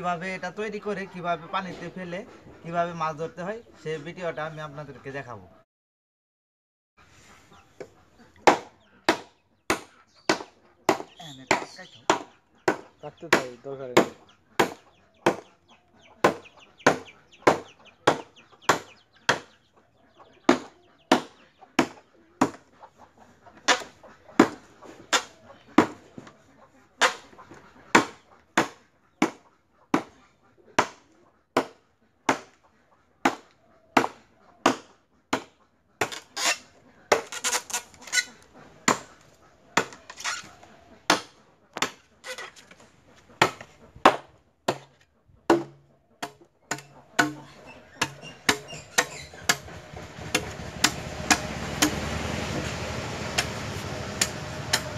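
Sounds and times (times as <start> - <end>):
blade chopping bamboo: 8.4 - 15.4, 20.5 - 22.6, 33.2 - 39.1, 39.8 - 40.4, 41.1 - 42.6, 43.4 - 52.7, 53.3 - 54.9.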